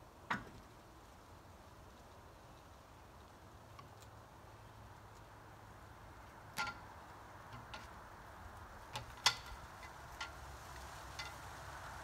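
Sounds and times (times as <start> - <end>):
sharp clicks and light knocks: 6.5 - 8.0, 8.9 - 11.5.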